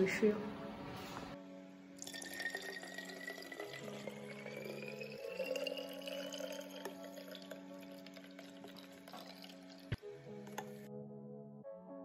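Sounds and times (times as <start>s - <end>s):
water pouring into bottle: 2.0s - 10.8s.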